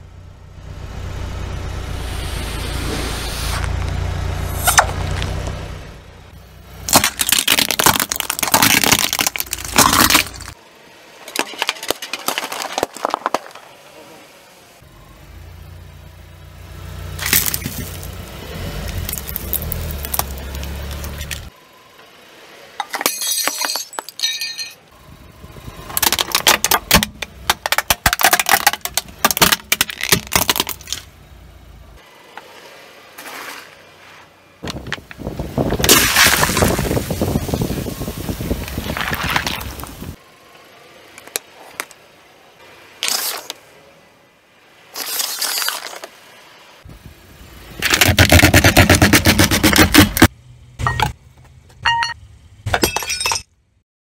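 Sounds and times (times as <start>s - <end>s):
car tyre rumble: 0.0s - 22.3s, 24.9s - 52.8s
baubles shattering under tyre: 6.8s - 10.6s, 11.2s - 13.8s, 17.2s - 18.1s, 22.8s - 24.8s, 25.9s - 31.1s, 35.8s - 37.6s, 38.8s - 40.0s, 51.8s - 53.6s
tyre crunching cup of sweets: 6.9s - 10.6s, 47.8s - 50.3s.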